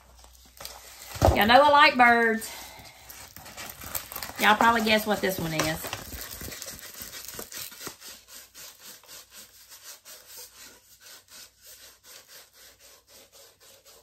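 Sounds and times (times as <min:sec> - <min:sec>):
hands rubbing canvas: 0:04.4 - 0:14.0.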